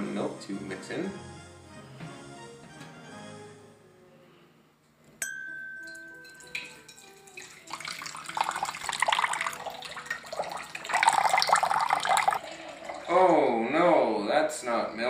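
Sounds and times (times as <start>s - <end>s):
sharp ringing clink: 5.2s - 7.0s
liquid pouring and splashing: 5.9s - 13.5s.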